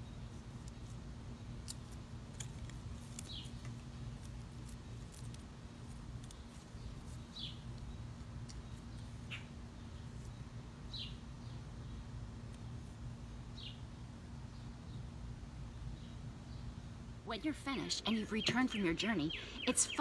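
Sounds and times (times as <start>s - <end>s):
steady low hum: 0.0s - 20.0s
bird chirping: 6.2s - 12.1s, 15.8s - 20.0s.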